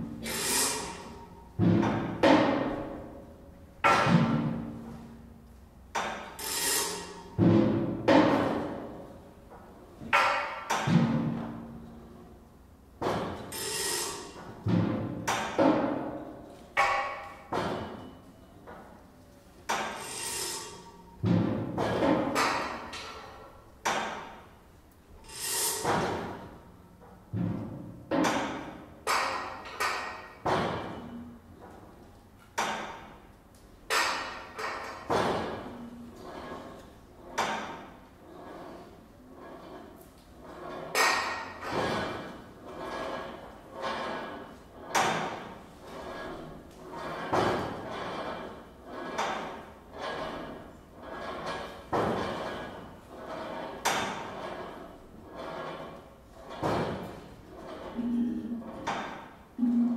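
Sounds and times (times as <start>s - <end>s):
soft scraping percussion: 19.3s - 23.4s, 25.2s - 26.7s, 37.9s - 59.9s
percussion struck with mallets: 59.6s - 59.9s.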